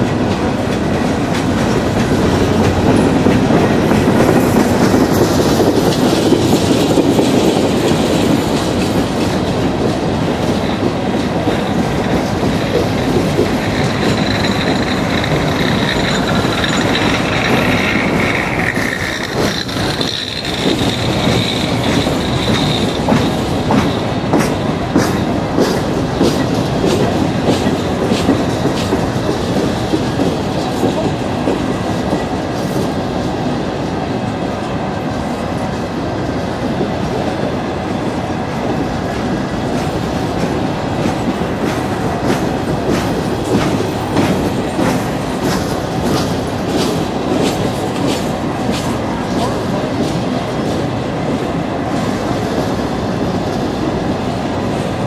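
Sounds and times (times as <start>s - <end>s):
train wheels rumbling on rails: 0.0s - 55.0s
wheel squeal: 13.8s - 23.3s.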